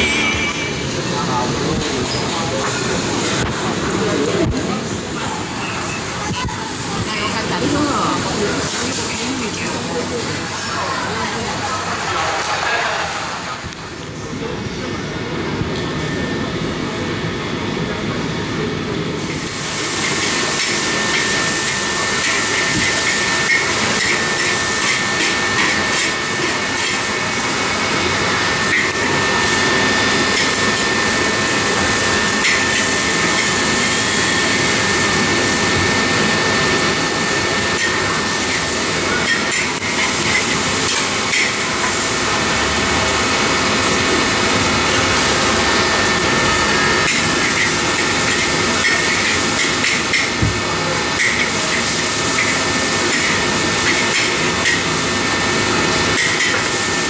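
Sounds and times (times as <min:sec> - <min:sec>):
background hubbub: 0:00.0 - 0:19.6
noodles sizzling in a wok: 0:19.2 - 0:57.0.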